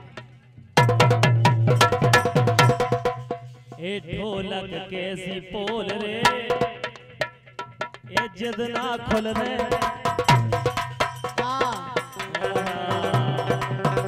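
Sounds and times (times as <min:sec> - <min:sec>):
sharp drum strikes: 0:00.8 - 0:03.9.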